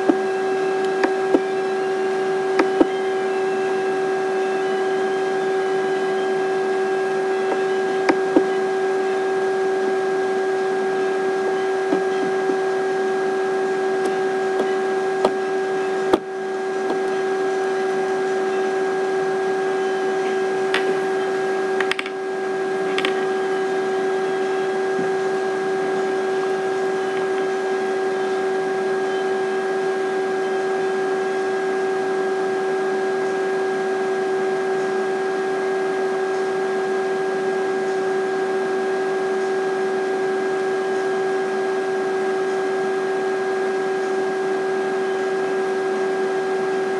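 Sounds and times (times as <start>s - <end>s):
steady hum: 0.0s - 46.9s.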